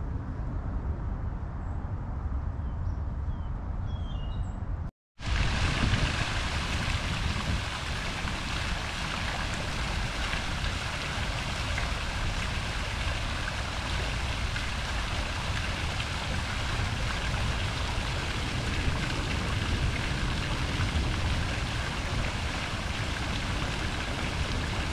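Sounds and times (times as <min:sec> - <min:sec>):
fountain water splashing: 0:05.2 - 0:24.9.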